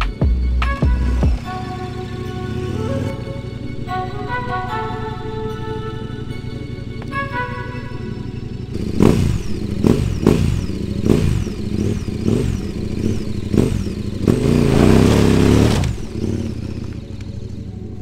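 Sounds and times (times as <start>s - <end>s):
motorcycle engine revving: 0.0s - 18.0s.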